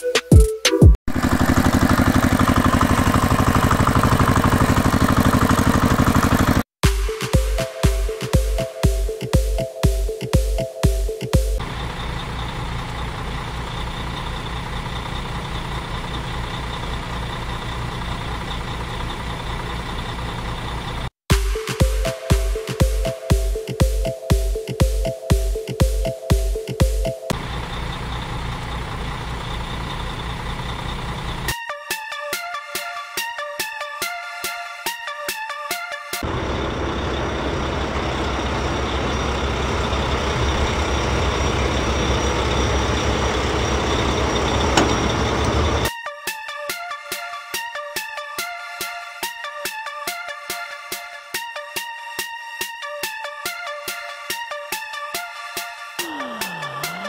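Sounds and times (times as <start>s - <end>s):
truck engine running: 1.1s - 6.7s, 11.4s - 21.1s, 27.3s - 31.5s, 36.2s - 45.9s.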